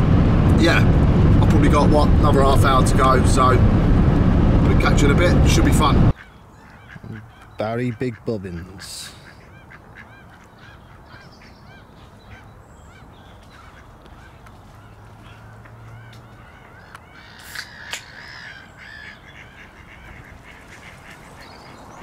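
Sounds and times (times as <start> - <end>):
waterbirds calling: 4.8 - 22.0.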